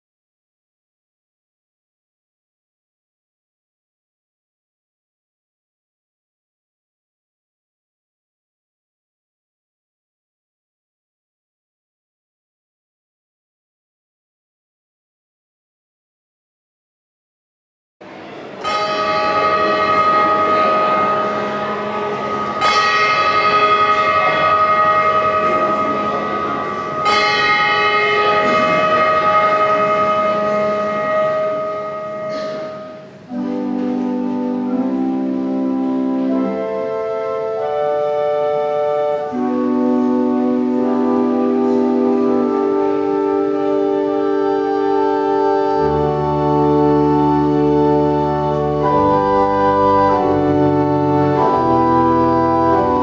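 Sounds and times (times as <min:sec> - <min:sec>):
church organ chords: 0:18.4 - 0:53.0
handbells ringing: 0:18.6 - 0:33.0.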